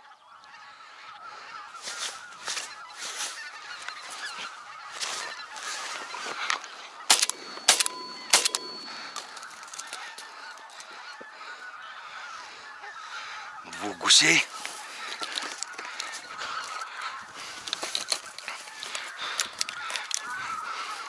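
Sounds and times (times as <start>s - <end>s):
geese honking: 0.0s - 21.0s
shotgun shots: 7.1s - 9.3s.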